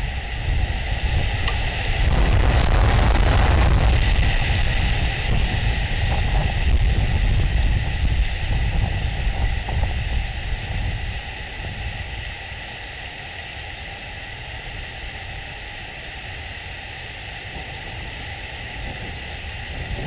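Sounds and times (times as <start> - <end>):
storm rain hissing: 0.0 - 20.0
wind rumble on microphone: 0.0 - 20.0.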